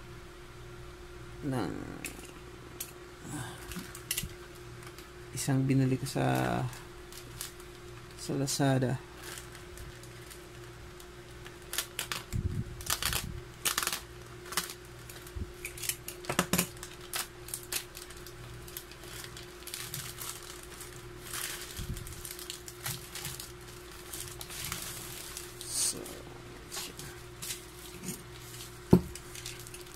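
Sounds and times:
steady low hum: 0.0 - 29.9
bubble wrap crinkling: 5.9 - 29.9
plastic mailer bag tearing: 6.2 - 8.2, 9.2 - 29.9.

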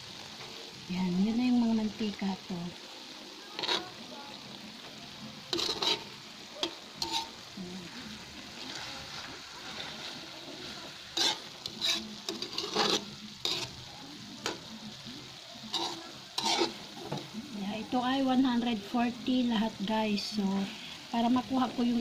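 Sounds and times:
frying sizzle: 0.0 - 22.0
metal spoon scraping a wok: 3.6 - 4.0, 5.5 - 7.5, 8.4 - 14.6, 15.7 - 17.3.

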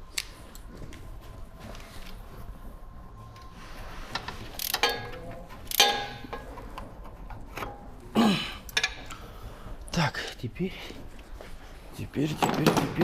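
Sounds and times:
metal tools clinking on steel: 4.5 - 6.7.

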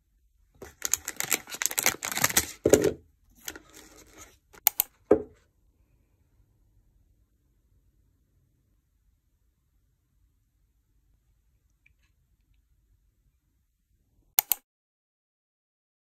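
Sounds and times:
plastic wrapper tearing and crinkling: 0.6 - 4.3.

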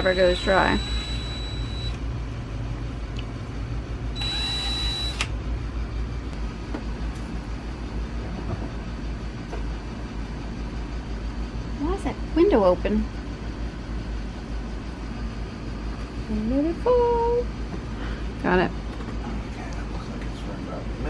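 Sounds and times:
steady low hum: 0.0 - 21.0
cordless drill whining: 4.2 - 5.3
drill click: 4.2 - 5.3.

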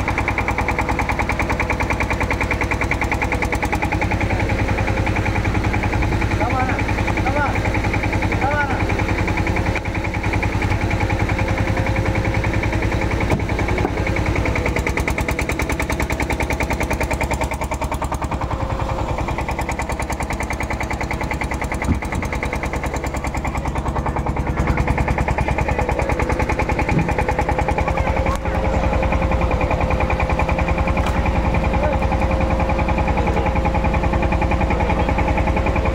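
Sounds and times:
engine chugging: 0.0 - 35.9
steady engine whine: 0.0 - 35.9.

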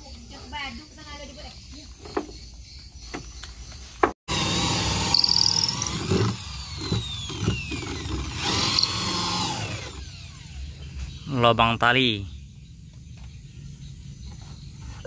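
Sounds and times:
electric drill whining: 4.3 - 10.8.

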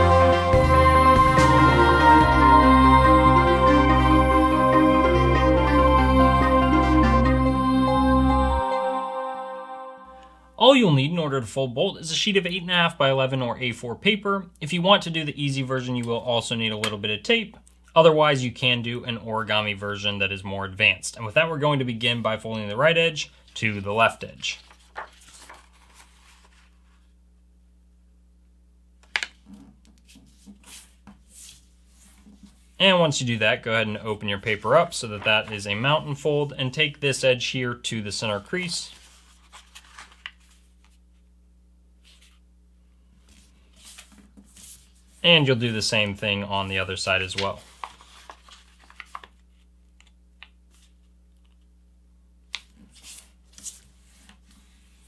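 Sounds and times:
paper rustling and swishing: 24.4 - 27.2, 29.5 - 32.8, 38.6 - 41.0, 42.0 - 42.4, 43.2 - 45.3, 47.2 - 49.7, 52.7 - 55.0.

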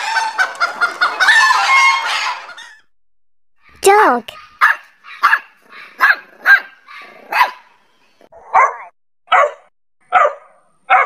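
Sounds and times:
dog barking: 4.3 - 7.7, 8.4 - 11.0.

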